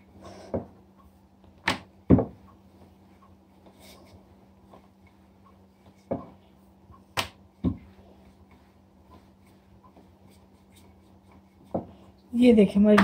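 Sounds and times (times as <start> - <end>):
rolling pin rolling dough: 0.1 - 13.0.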